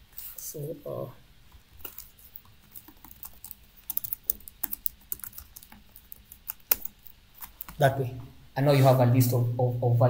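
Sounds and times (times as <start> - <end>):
typing on laptop keyboard: 2.7 - 7.8.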